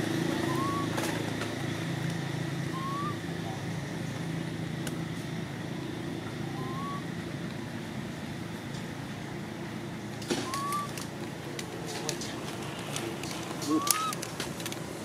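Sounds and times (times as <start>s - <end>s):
low background rumble: 0.0s - 15.0s
short rising chirps: 2.7s - 3.2s.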